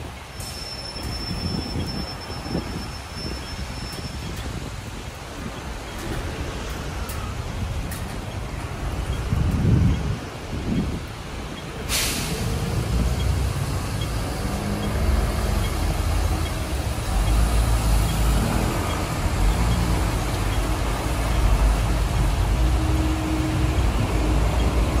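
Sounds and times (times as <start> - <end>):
traffic on wet road: 0.0 - 25.0
short sharp hiss: 11.9 - 12.6.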